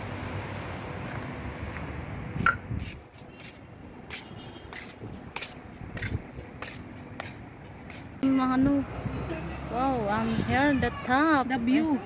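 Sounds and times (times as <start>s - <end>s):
city traffic hum: 0.0s - 12.0s
wind on microphone: 2.2s - 3.2s, 4.8s - 6.6s, 10.0s - 11.4s.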